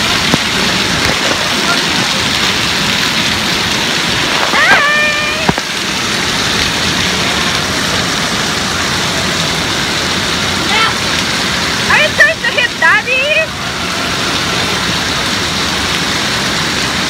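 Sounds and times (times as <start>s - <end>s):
rushing water in indoor pool: 0.0s - 17.0s
child crying out: 4.5s - 5.6s.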